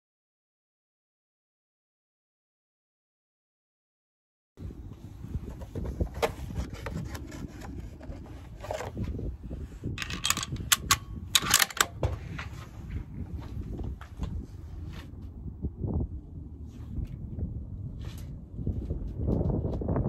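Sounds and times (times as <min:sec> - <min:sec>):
rifle handling rubbing and clicks: 0:06.4 - 0:09.1, 0:10.0 - 0:12.5
low rumble: 0:09.2 - 0:20.0.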